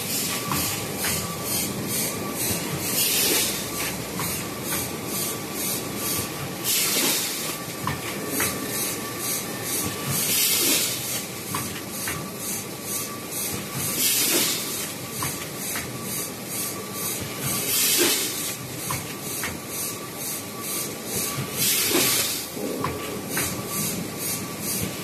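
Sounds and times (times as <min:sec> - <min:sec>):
compressed air hiss: 0:17.7 - 0:18.5.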